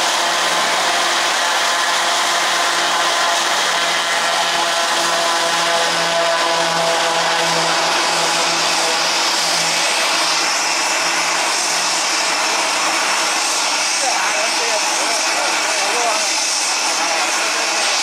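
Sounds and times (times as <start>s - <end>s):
high engine whine: 0.0s - 18.0s
turboprop engine and propeller drone: 0.0s - 18.0s.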